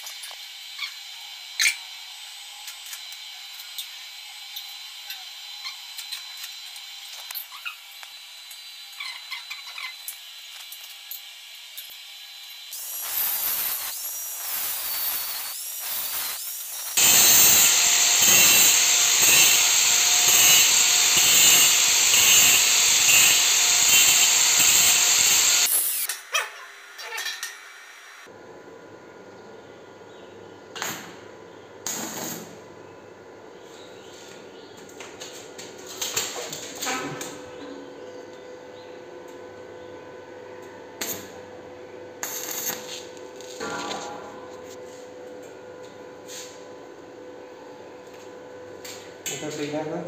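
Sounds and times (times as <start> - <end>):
angle grinder whining on metal: 0.0 - 28.3.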